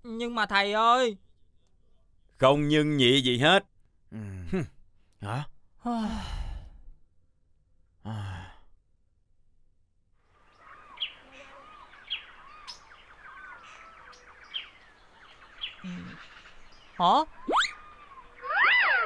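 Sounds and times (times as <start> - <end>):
small birds chirping: 0.2 - 3.2, 10.3 - 19.0.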